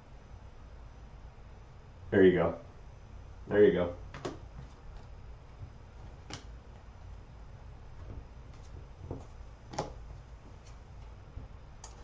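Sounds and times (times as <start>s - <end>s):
trading cards clicking and tapping: 4.1s - 5.1s.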